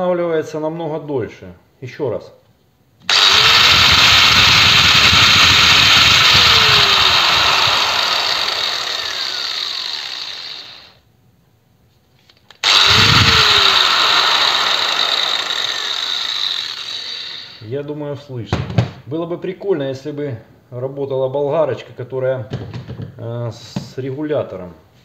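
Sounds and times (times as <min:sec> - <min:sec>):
angle grinder running: 0:03.1 - 0:11.0, 0:12.6 - 0:17.7.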